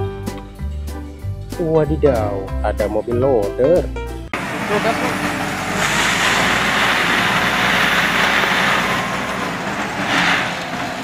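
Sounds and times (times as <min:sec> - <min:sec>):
diesel engine running: 0:04.4 - 0:11.0
material pouring into hopper: 0:04.4 - 0:11.0.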